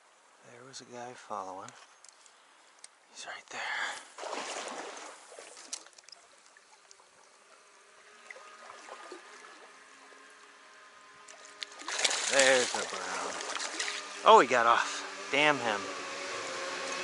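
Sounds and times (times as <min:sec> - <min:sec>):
shallow stream trickling: 0:03.9 - 0:17.0
fishing reel whirring: 0:06.9 - 0:14.3.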